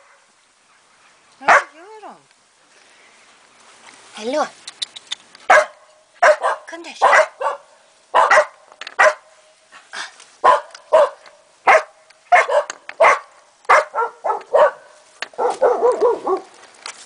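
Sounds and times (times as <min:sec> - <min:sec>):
dog barking: 0:01.5 - 0:01.8, 0:05.5 - 0:09.3, 0:10.4 - 0:16.5.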